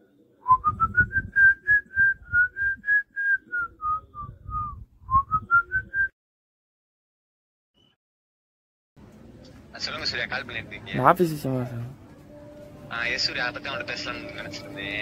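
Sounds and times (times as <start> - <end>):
person whistling a tune: 0.4 - 6.1.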